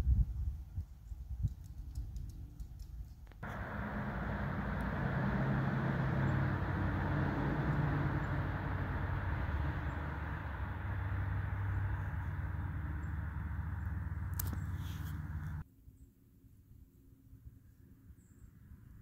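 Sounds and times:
low engine hum: 3.4 - 15.6
rushing noise: 3.4 - 15.6.

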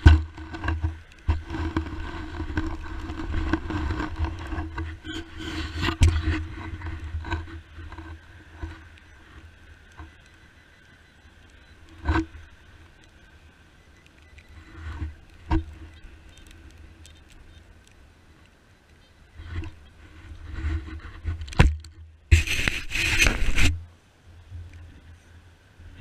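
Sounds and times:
scraping soil: 0.0 - 9.5, 22.3 - 23.8
rustling: 0.0 - 10.5, 11.4 - 23.9.

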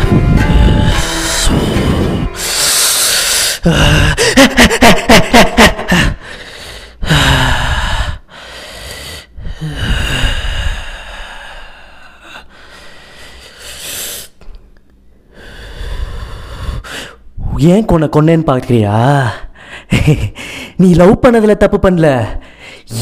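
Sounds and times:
man laughing: 3.6 - 6.3, 19.8 - 20.4.

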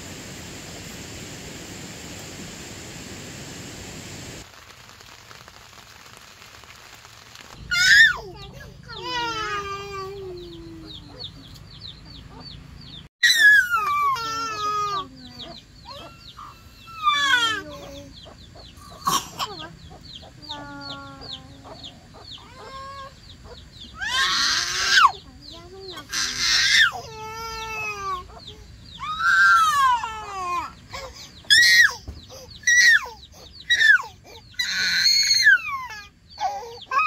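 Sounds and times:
toddler crying: 7.7 - 11.2, 13.2 - 15.1, 15.9 - 18.1, 24.0 - 25.2, 26.0 - 28.4, 29.0 - 37.0.

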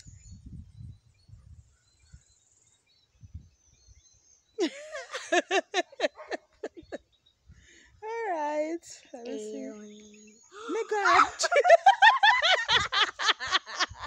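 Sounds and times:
person laughing: 4.6 - 7.0, 10.6 - 14.0.

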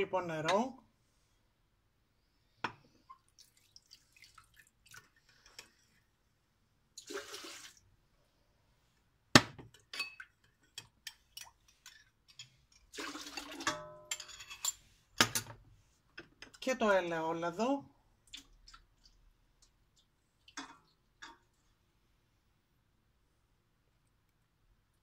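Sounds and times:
water pouring into metal bowl: 3.1 - 5.2, 7.0 - 7.8, 12.9 - 13.7
glassware clinking: 9.9 - 10.9, 13.6 - 15.5.

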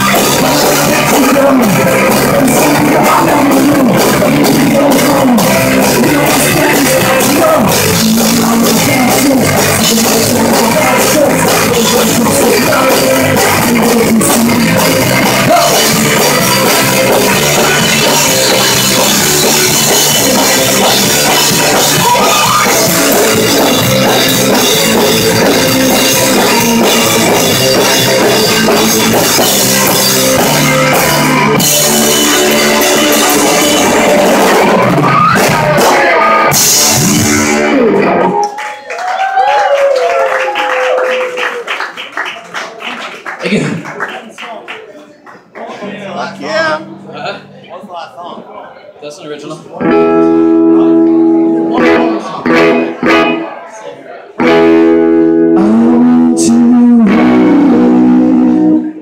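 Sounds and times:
rock band playing loudly: 0.0 - 41.6, 49.8 - 53.7, 54.3 - 59.0
people shouting: 21.8 - 23.0
people clapping: 37.9 - 46.0.

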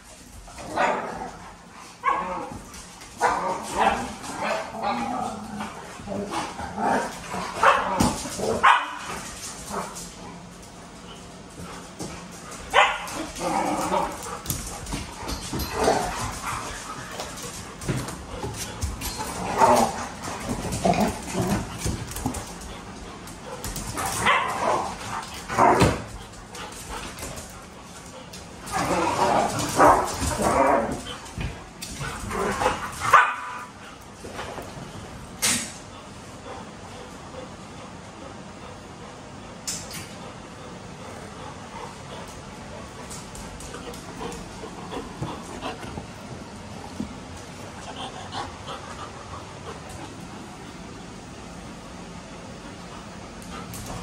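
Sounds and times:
dogs barking and whining: 0.4 - 10.2, 12.2 - 34.0
dogs barking: 7.6 - 9.1, 12.7 - 13.4, 24.0 - 25.0, 33.0 - 33.7.

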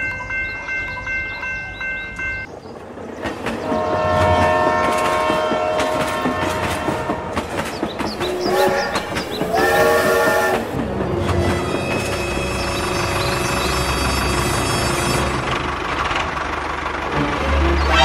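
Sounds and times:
wheels clacking on track: 0.0 - 18.0
toy train horn: 3.7 - 7.4, 8.4 - 10.7, 17.5 - 18.0.

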